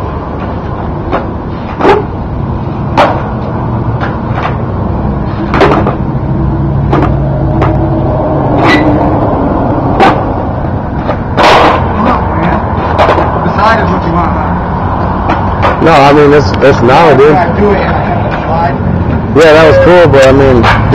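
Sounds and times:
low rumble: 6.0 - 13.5
skateboard clacking on concrete: 12.8 - 13.4.

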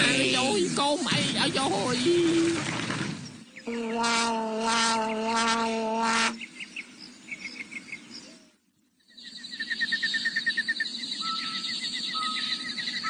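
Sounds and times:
bird chirps: 1.8 - 4.0, 4.9 - 13.0.

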